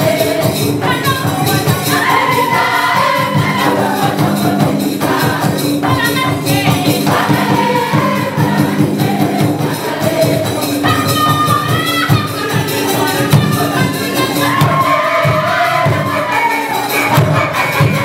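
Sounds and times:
choir singing: 0.0 - 18.0
shaken percussion: 0.0 - 18.0.

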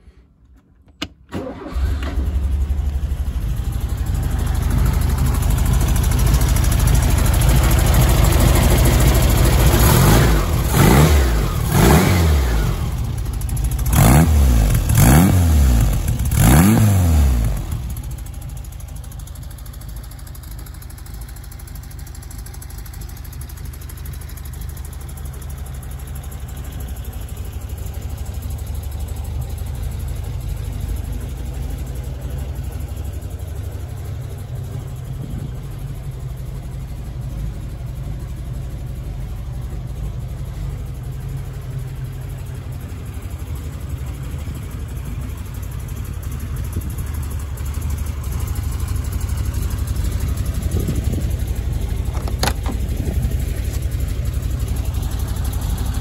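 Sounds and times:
car engine idling and revving: 0.0 - 56.0
car engine cranking: 0.4 - 12.0, 48.3 - 56.0.

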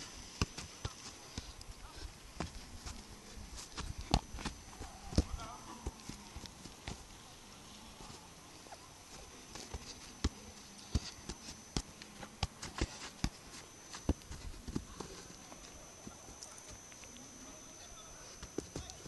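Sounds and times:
foot kicking soccer ball: 0.2 - 8.3, 9.1 - 17.2.

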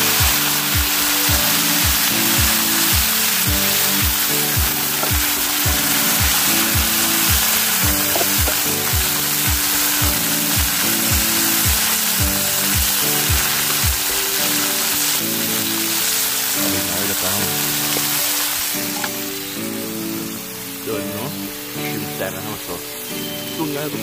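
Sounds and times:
background music: 0.0 - 24.0
food sizzling in a pan: 0.0 - 24.0
kick drum beating: 0.2 - 14.0.

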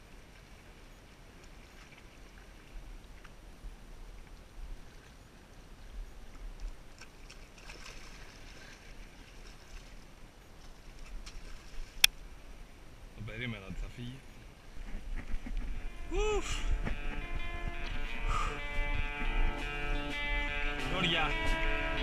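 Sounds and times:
water lapping against rocks: 0.4 - 12.3, 14.6 - 19.7
wind rumbling on microphone: 9.0 - 22.0.

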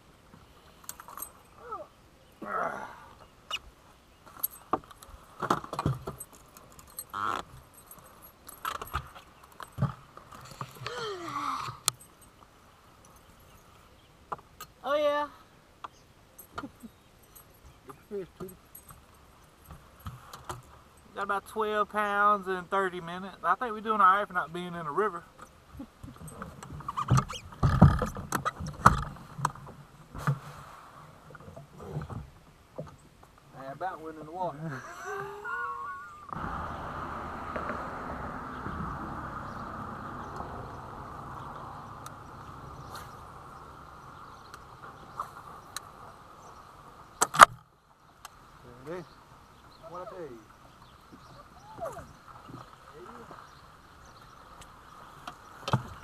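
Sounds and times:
metallic clinks and rattles: 0.8 - 1.6, 4.3 - 10.9, 16.4 - 20.8
knocks and clunks on boat deck: 26.0 - 30.4.

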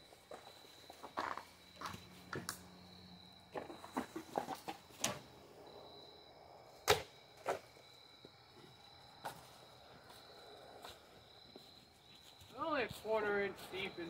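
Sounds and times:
crickets chirring: 0.0 - 14.0
footsteps on grass: 9.4 - 14.0.

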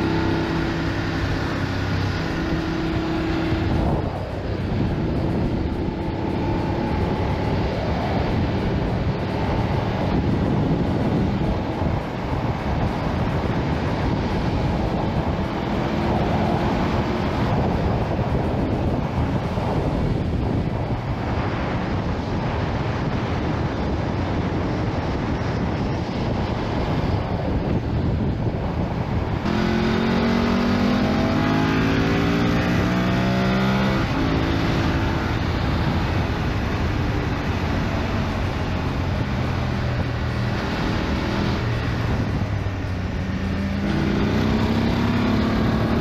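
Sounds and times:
motorcycle engine running: 0.0 - 46.0
wind rushing over microphone: 0.0 - 46.0.

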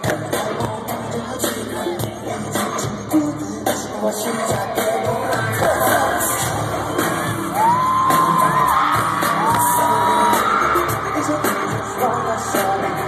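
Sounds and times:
amplified live pop song: 0.0 - 13.0
person singing: 0.0 - 13.0
fans screaming and yelling: 5.5 - 13.0.

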